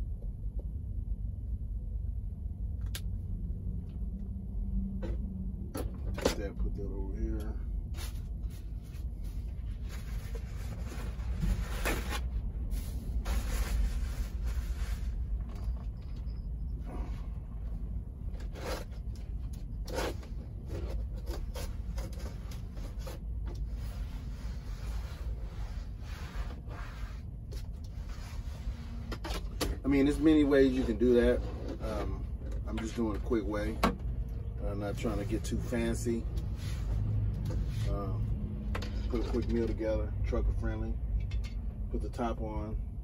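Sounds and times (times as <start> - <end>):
low rumble: 0.0 - 29.1
cloth rubbing plastic: 7.9 - 16.0, 19.8 - 29.1.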